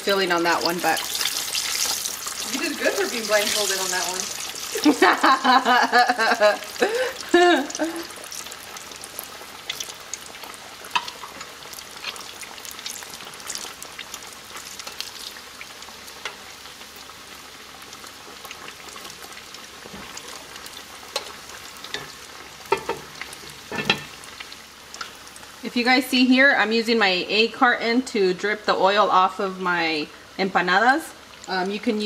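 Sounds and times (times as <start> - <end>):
deep-frying oil sizzling and popping: 0.0 - 27.6, 28.3 - 32.0
metal tongs clicking on pot: 21.1 - 21.3.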